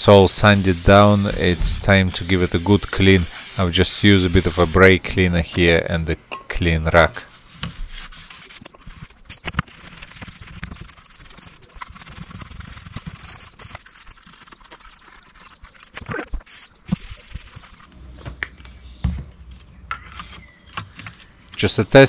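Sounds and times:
rag wiping plastic handle: 0.2s - 5.8s.

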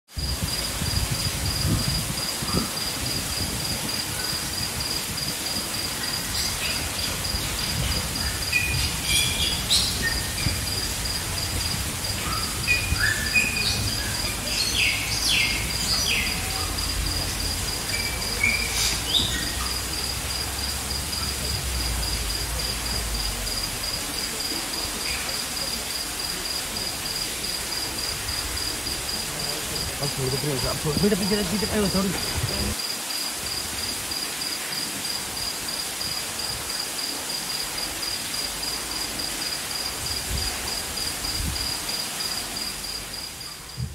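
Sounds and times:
pulsing insect trill: 0.2s - 43.8s
bird chirps and calls: 6.2s - 10.9s, 12.2s - 16.9s, 17.8s - 19.8s.

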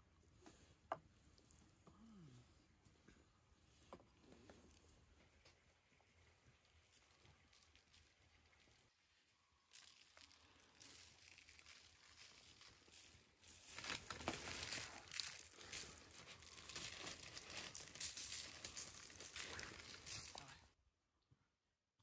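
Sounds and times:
parchment paper crinkling: 9.7s - 20.7s.

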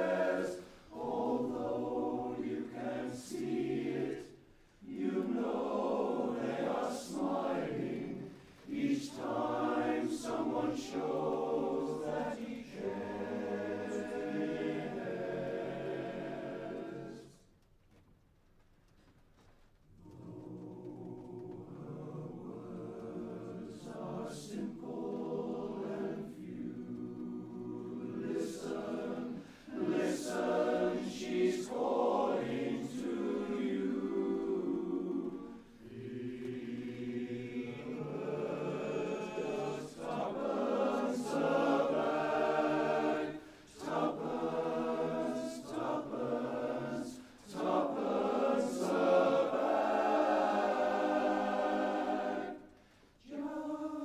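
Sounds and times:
male chorus singing a cappella: 0.0s - 17.4s, 20.0s - 54.0s.

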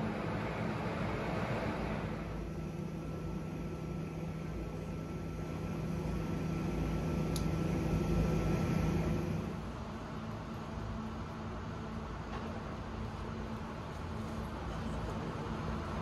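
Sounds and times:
electric train hum and rumble: 0.0s - 16.0s
faint high whine: 0.0s - 16.0s
light tick: 7.3s - 7.5s.

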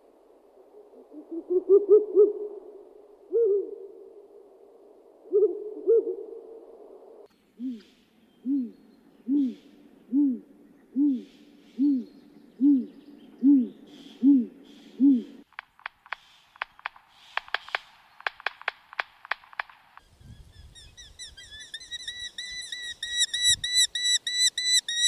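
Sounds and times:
low hoots: 0.6s - 4.4s, 5.2s - 6.9s, 7.5s - 15.5s.

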